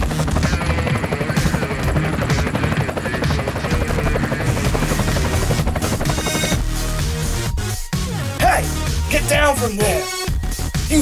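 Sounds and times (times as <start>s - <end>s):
electronic dance music: 3.9s - 11.0s.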